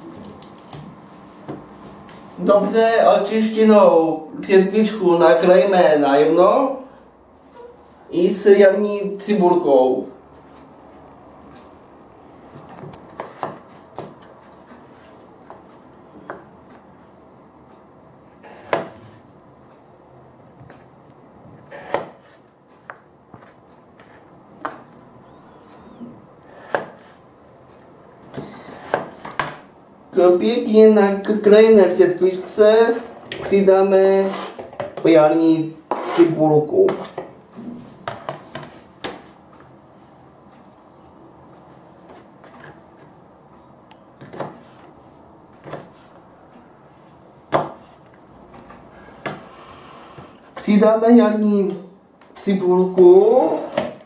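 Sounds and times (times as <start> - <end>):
knife chopping on plastic board: 12.8 - 14.3, 18.5 - 19.2, 21.6 - 24.8, 26.5 - 27.2, 28.4 - 29.6, 44.2 - 44.8, 45.6 - 46.0, 47.5 - 47.9.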